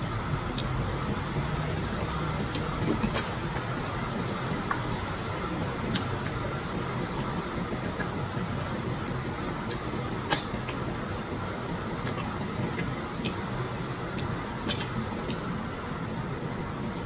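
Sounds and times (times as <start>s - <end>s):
chewing smacks and clicks: 9.6s - 11.0s, 11.7s - 13.4s, 14.1s - 15.4s.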